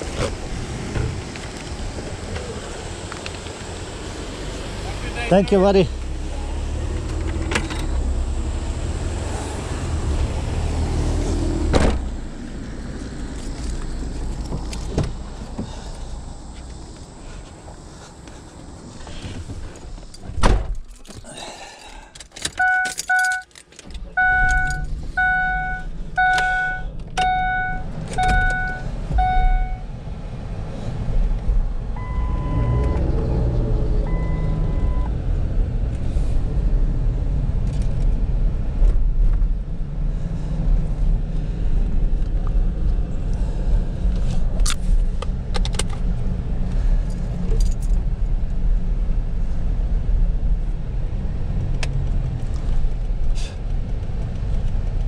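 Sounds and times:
thump: 0:11.7 - 0:12.1, 0:20.3 - 0:20.8
keys jingling: 0:20.8 - 0:24.9
high beeps: 0:22.6 - 0:23.4, 0:24.2 - 0:29.8, 0:32.0 - 0:33.0.

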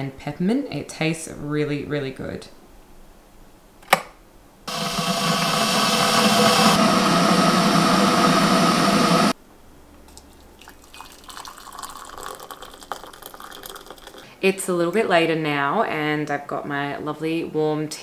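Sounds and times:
kettle water heating: 0:04.7 - 0:09.4, 0:10.2 - 0:14.3
water pouring into a mug: 0:10.1 - 0:14.3.

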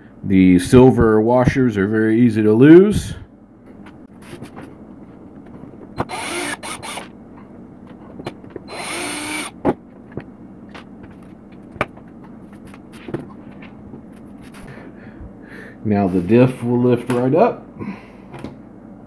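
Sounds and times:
cordless drill whirring: 0:06.0 - 0:07.1, 0:08.7 - 0:09.6.

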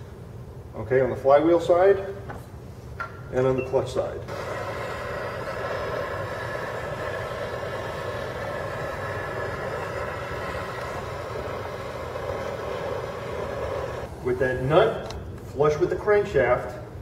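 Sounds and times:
propane torch burning: 0:04.3 - 0:16.7.

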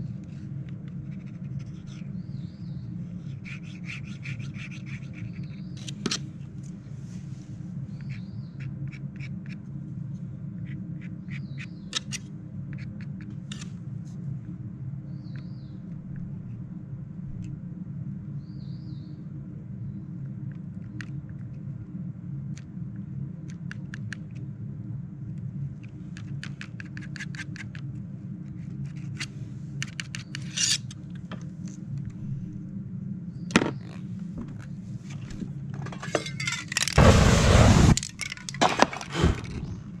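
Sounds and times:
steady low hum: 0:00.0 - 0:40.0
palette knife scraping paper: 0:01.0 - 0:02.2, 0:03.1 - 0:06.0.

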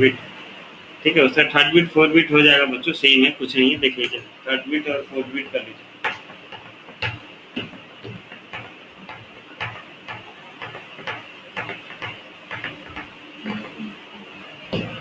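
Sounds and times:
faint steady hiss: 0:00.0 - 0:15.0
regular ticking: 0:05.5 - 0:13.7.

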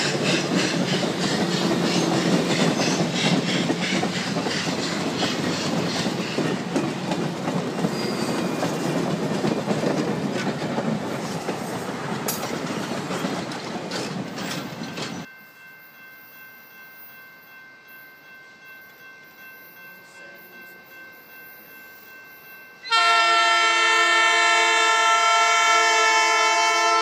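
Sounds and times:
train wheels clattering on rails: 0:00.0 - 0:15.3.

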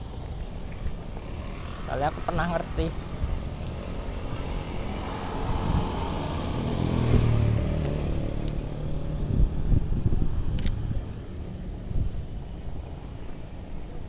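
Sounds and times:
traffic noise: 0:00.0 - 0:14.0
vehicle engine passing: 0:01.2 - 0:10.2.

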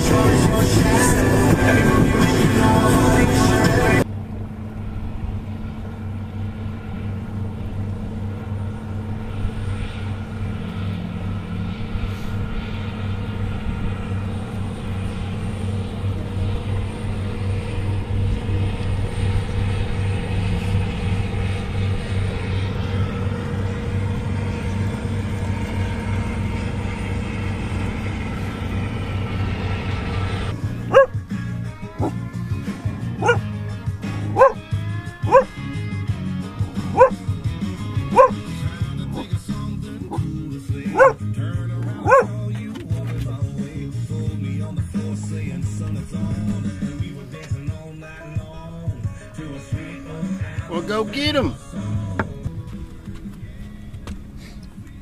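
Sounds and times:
background music: 0:00.0 - 0:04.1, 0:21.3 - 0:55.0
boat engine droning: 0:00.0 - 0:55.0
water noise: 0:30.5 - 0:35.6, 0:36.6 - 0:49.6.

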